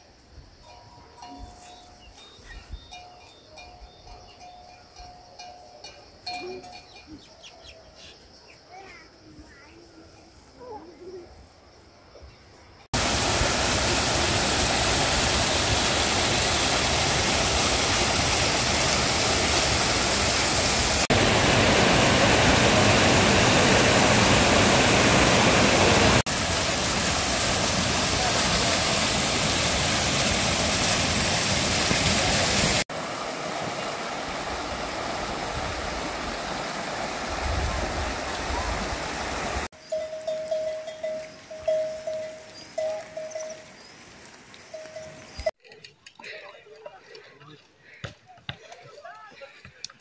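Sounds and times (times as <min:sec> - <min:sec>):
rushing stream water: 0:12.9 - 0:45.6.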